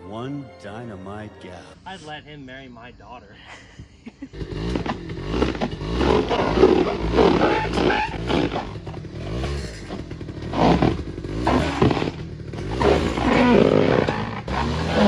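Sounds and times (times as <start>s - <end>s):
small quad engine revving: 4.3s - 15.0s.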